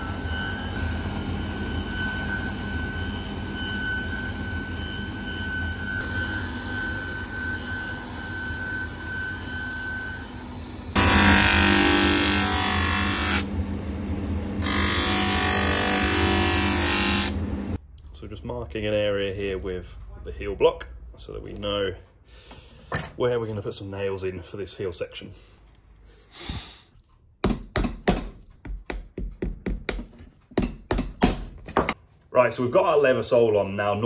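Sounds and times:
machine motor humming: 10.3 - 17.8.

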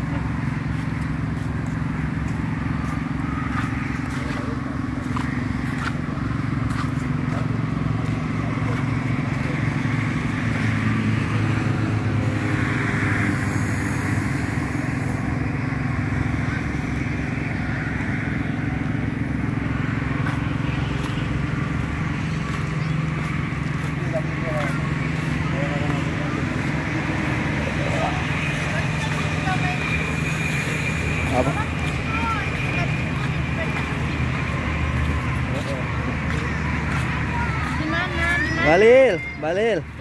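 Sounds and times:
traffic noise: 0.0 - 40.0
vehicle engines humming: 0.0 - 40.0.

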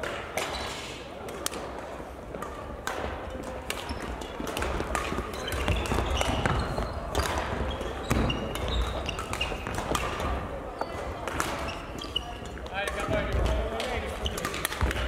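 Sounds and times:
racket hitting shuttlecock: 0.0 - 15.0
court shoes squeaking: 0.1 - 1.1, 2.3 - 15.0.

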